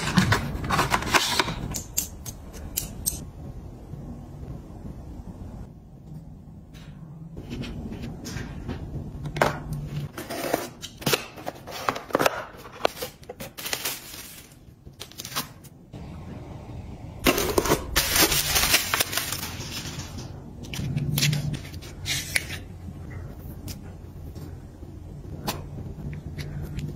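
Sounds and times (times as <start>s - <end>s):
packaging rustling and crinkling: 11.5s - 15.7s, 17.2s - 22.7s.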